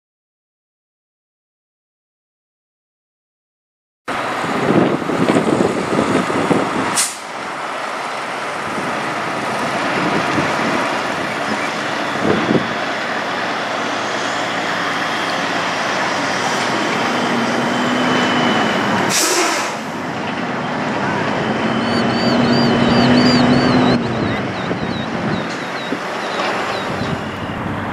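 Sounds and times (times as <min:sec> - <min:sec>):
diesel truck engine running: 0:04.1 - 0:27.9
air brake hiss: 0:07.0 - 0:07.4, 0:19.1 - 0:20.0.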